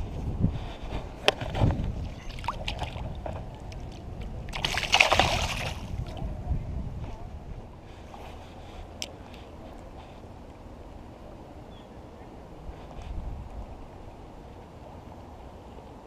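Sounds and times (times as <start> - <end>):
water splashing: 2.0 - 6.2.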